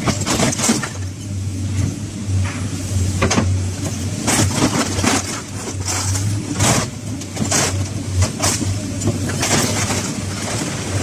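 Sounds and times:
excavator engine humming: 0:00.0 - 0:11.0
scrap metal scraping and rattling: 0:03.9 - 0:11.0.

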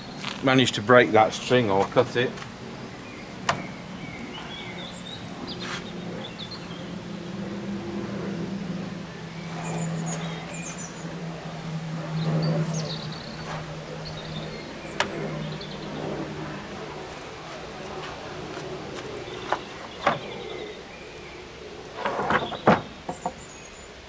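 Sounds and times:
birds chirping: 0:00.0 - 0:24.0
low motor hum: 0:01.0 - 0:24.0.

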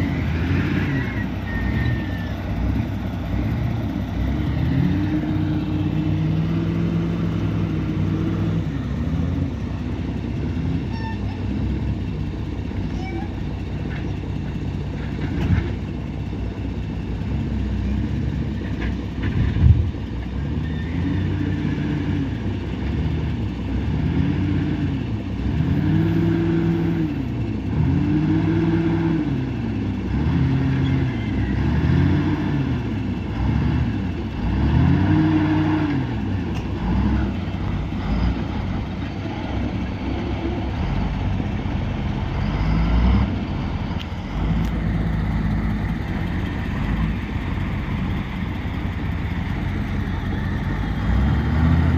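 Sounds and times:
diesel engine revving: 0:00.0 - 0:51.9.

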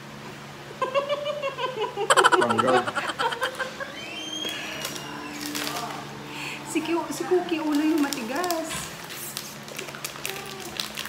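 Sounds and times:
child laughing: 0:00.8 - 0:04.0.

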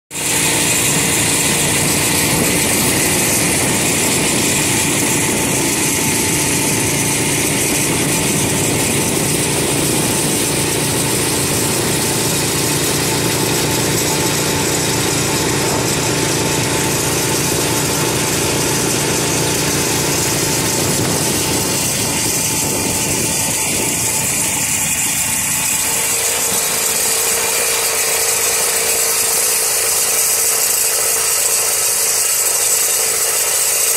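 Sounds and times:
snowmobile engines droning: 0:00.1 - 0:33.9.

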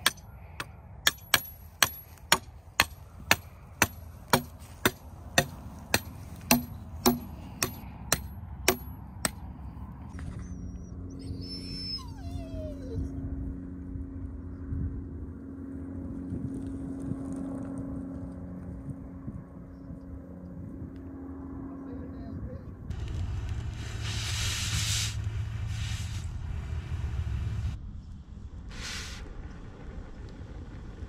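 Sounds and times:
hammer striking steel stakes: 0:00.0 - 0:09.4.

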